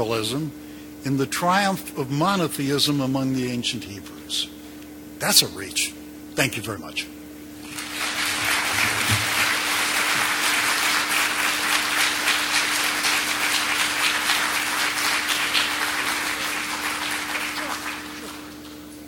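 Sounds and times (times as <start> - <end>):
audience applauding: 7.6 - 18.8.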